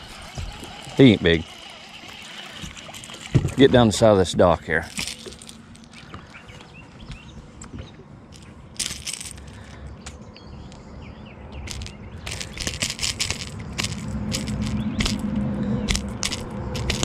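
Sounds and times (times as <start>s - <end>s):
fish flopping: 0.0s - 4.0s, 11.7s - 15.3s
lure hooks rattling: 4.8s - 6.0s, 8.3s - 9.8s, 11.7s - 15.3s, 15.9s - 17.0s.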